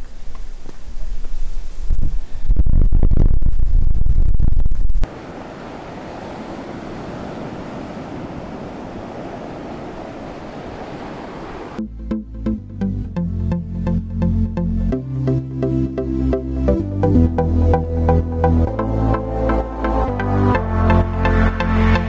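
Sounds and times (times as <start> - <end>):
wind buffeting microphone: 0.0 - 11.8
sea and wind rushing: 1.4 - 11.8.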